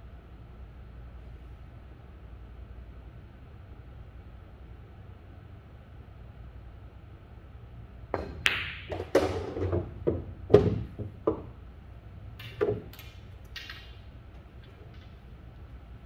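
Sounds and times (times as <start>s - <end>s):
balls knocking against cushions: 8.2s - 11.6s
cue tip clicking on ball: 8.2s - 11.6s
pool balls clicking together: 8.2s - 15.8s.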